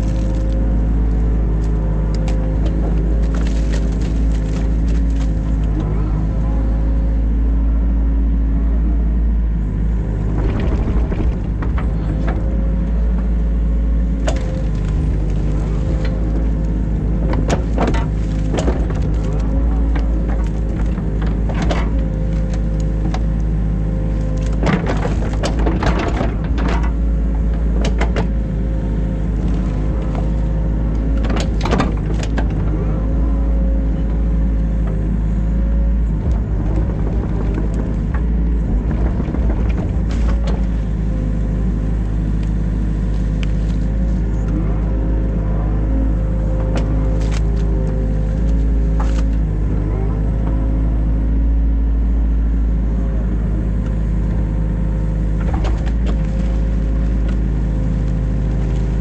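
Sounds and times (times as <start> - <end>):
excavator engine droning: 0.0 - 59.0
knocks and scrapes: 10.1 - 13.4, 14.0 - 23.4, 24.2 - 28.4, 35.6 - 41.4.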